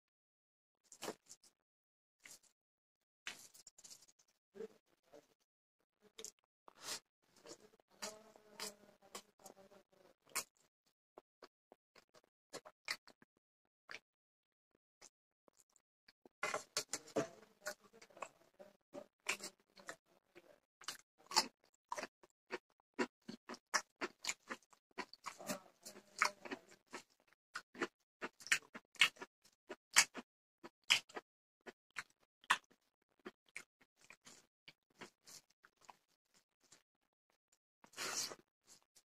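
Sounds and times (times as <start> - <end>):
fingers squishing food on a plate: 19.0 - 36.8.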